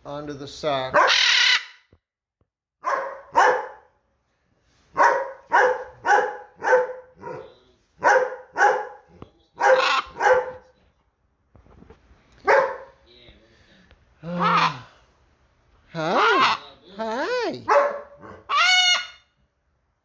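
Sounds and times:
dog barking: 0.9 - 1.4, 2.8 - 4.0, 4.9 - 10.8, 12.4 - 13.0, 17.6 - 19.0.

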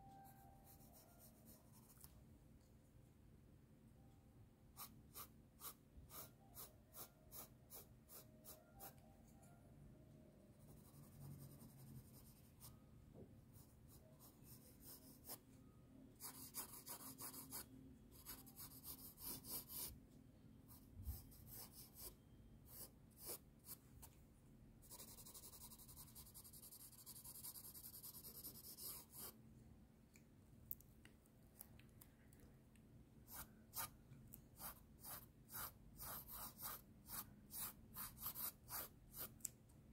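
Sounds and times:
pencil scratching on paper: 4.8 - 8.9, 10.6 - 12.6, 13.6 - 15.4, 16.2 - 20.0, 20.7 - 23.8, 24.8 - 29.4, 33.3 - 33.9, 34.6 - 39.3.

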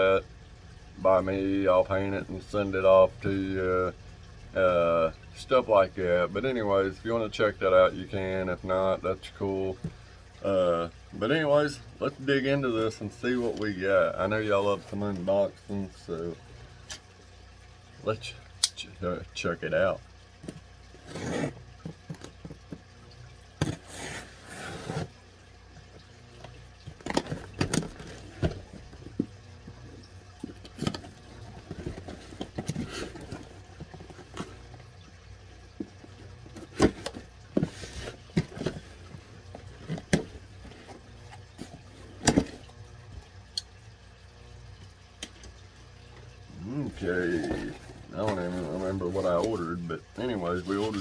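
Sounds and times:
cardboard scraping and rustling: 21.0 - 22.7, 23.6 - 25.1, 30.4 - 34.8, 35.8 - 42.6, 47.1 - 49.6, 50.6 - 51.0.

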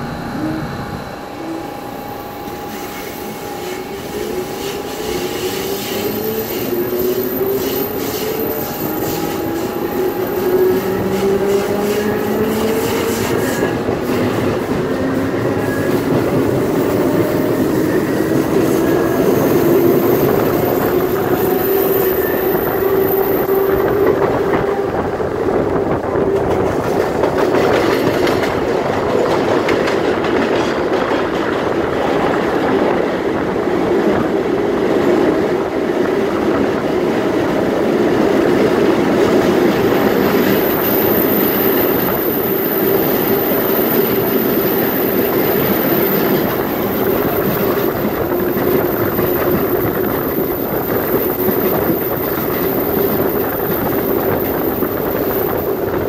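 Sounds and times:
train motor whine: 0.0 - 28.1
wheels on rail drone: 0.0 - 56.0.

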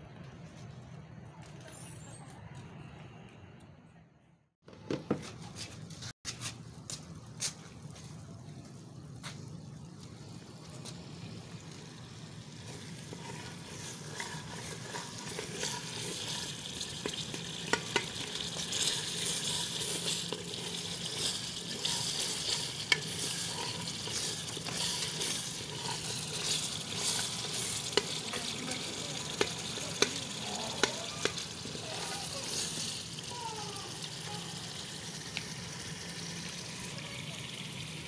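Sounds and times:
spices sizzling in hot oil: 10.0 - 38.0
spatula scraping pot: 12.6 - 33.0.

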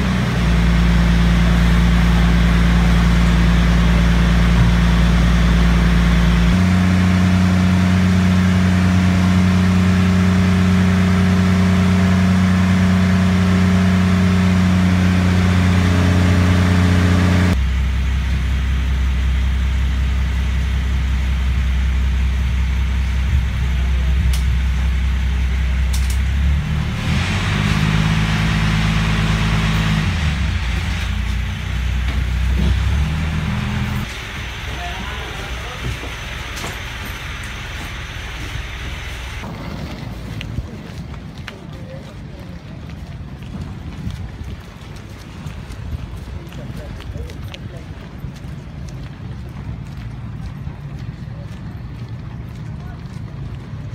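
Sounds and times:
ferry engine humming: 0.0 - 53.9
hissing noise: 26.7 - 40.0.

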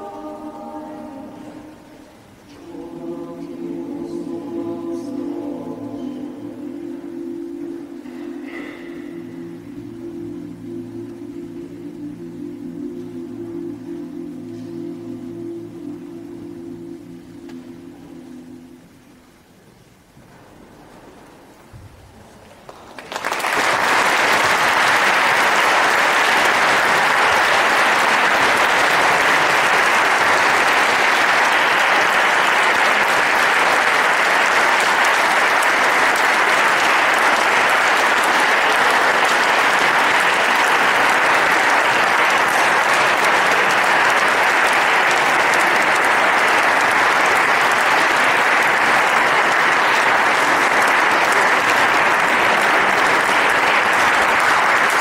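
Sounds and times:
audience applauding: 22.6 - 55.0.

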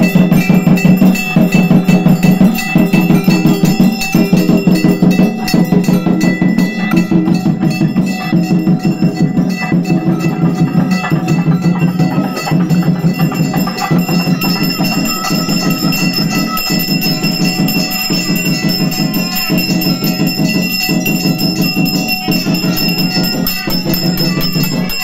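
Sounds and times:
brass hand bell ringing rapidly: 0.0 - 25.0
low pulsing beat: 0.0 - 25.0.

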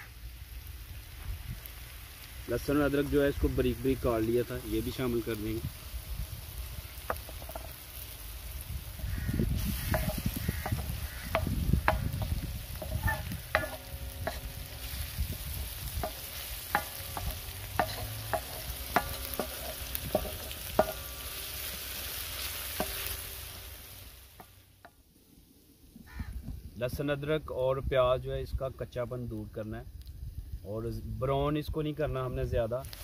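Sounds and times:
vegetables sizzling in oil: 0.0 - 24.9, 32.1 - 33.0
wooden spatula knocking on metal: 7.1 - 7.8, 9.0 - 21.5, 22.7 - 23.3.

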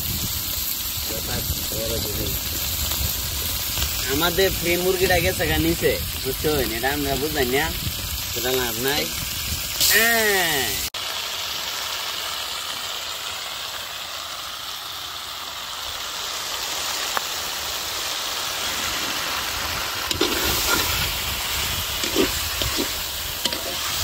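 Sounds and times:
chicken sizzling in oil: 0.0 - 24.0
metal spatula scraping wok: 18.5 - 24.0.

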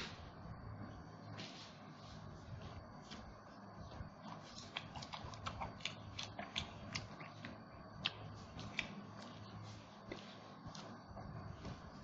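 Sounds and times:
chewing with mouth clicks and smacks: 4.2 - 9.6.

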